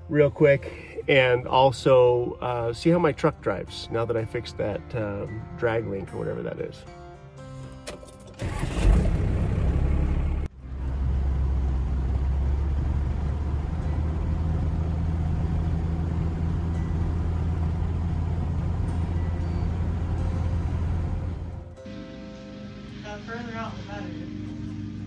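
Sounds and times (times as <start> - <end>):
road noise inside vehicle: 7.9 - 22.0
engine drone: 8.4 - 25.0.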